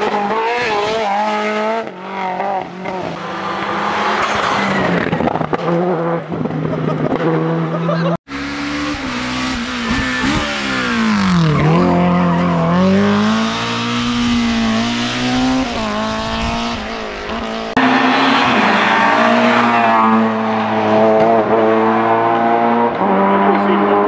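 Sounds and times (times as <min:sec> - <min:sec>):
rally car engine revving: 0:00.0 - 0:24.0.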